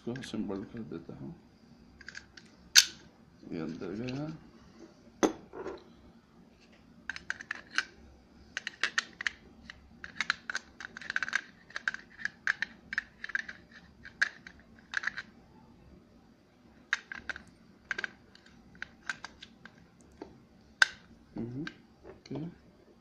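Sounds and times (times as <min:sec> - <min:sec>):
plastic parts clicking: 0:07.1 - 0:07.9, 0:08.6 - 0:15.3, 0:16.9 - 0:20.1.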